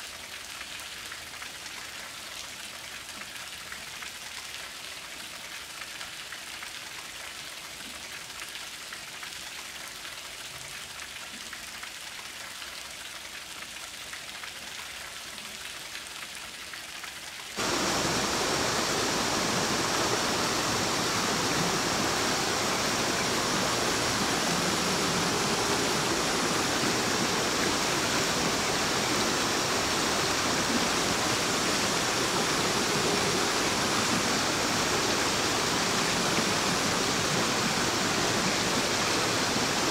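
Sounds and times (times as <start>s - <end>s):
light rain pattering: 0.0s - 39.9s
waterfall splashing over rocks: 15.8s - 39.9s.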